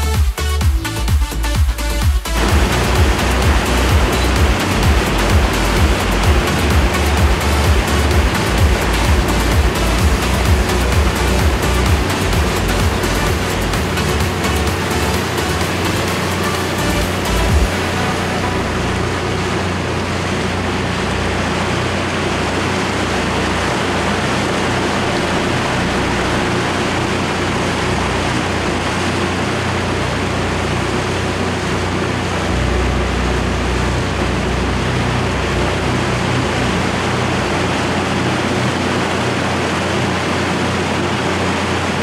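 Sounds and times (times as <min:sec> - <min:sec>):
boat motor droning: 0:00.0 - 0:42.0
water rushing: 0:02.3 - 0:42.0.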